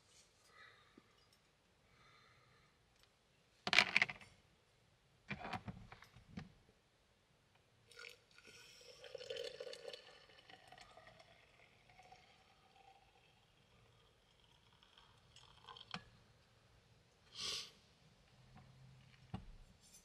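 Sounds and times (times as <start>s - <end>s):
liquid pouring: 7.9s - 16.2s.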